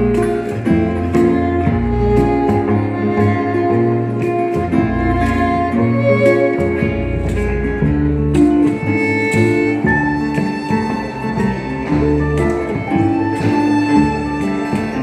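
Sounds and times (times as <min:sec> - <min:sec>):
double bass low notes: 0:00.0 - 0:15.0
guitar: 0:00.0 - 0:15.0
violin bowing a melody: 0:00.0 - 0:15.0.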